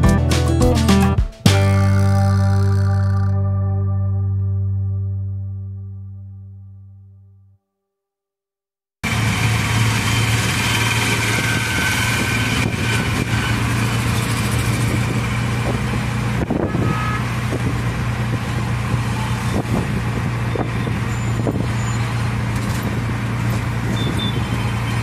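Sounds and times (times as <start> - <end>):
rickshaw engine droning: 9.0 - 25.0
road noise: 9.0 - 25.0
wind noise: 11.1 - 25.0.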